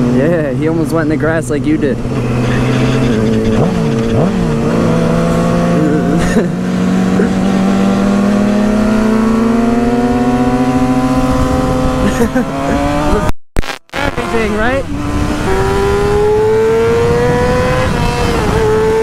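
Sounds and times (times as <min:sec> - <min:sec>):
motorcycle engine running: 0:00.0 - 0:12.5
wind rush over microphone: 0:10.0 - 0:13.3, 0:14.1 - 0:19.0.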